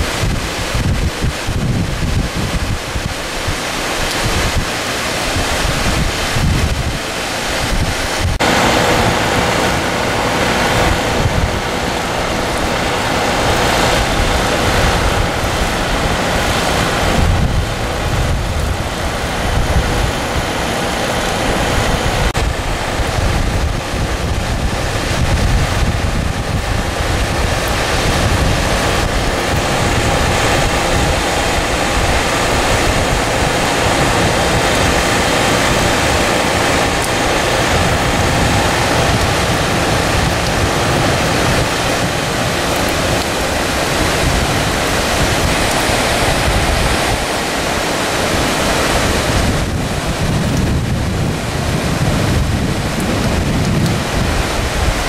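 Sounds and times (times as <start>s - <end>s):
floodwater rushing through channel: 0.0s - 55.0s
heavy rain: 0.0s - 55.0s
wind rumbling on microphone: 0.0s - 55.0s.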